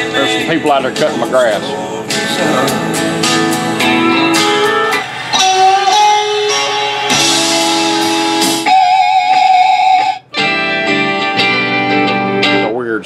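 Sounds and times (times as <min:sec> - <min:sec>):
guitar song from radio speaker: 0:00.0 - 0:13.0.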